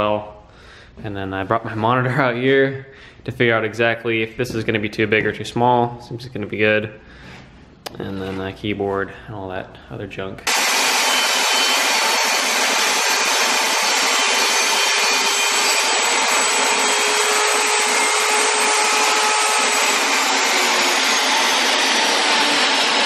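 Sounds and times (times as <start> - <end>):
table saw ripping wood: 10.5 - 23.0.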